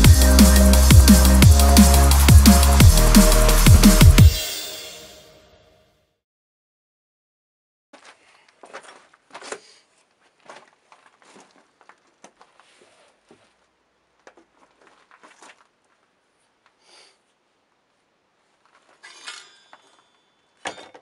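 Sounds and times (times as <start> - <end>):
faint rustling: 8.0 - 16.8.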